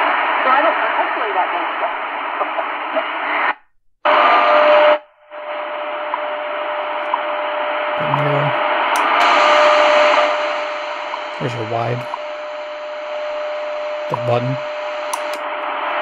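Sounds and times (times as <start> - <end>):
shortwave radio static: 0.0 - 16.0
steady radio tone: 0.4 - 16.0
radio click: 8.0 - 12.4, 13.5 - 15.7.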